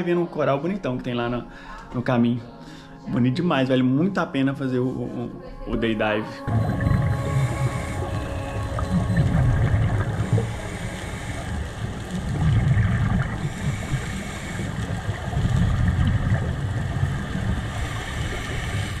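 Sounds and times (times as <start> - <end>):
muffled underwater rumble: 5.4 - 19.0.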